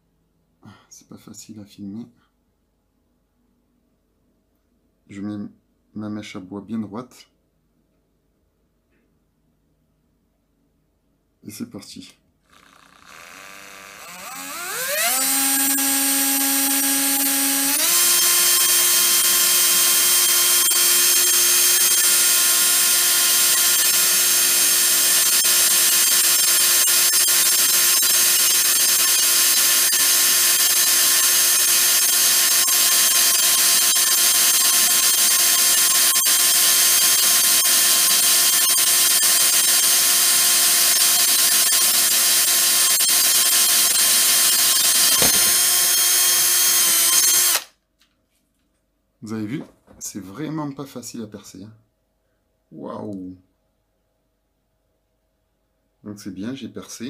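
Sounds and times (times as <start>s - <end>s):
electric drill boring wood: 12.5s - 47.7s.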